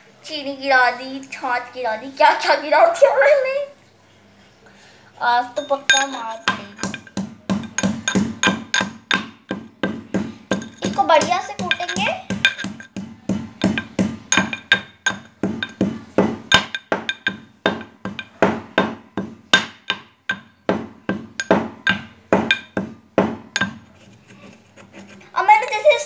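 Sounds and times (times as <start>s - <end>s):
metal pestle striking metal mortar: 5.6s - 24.2s.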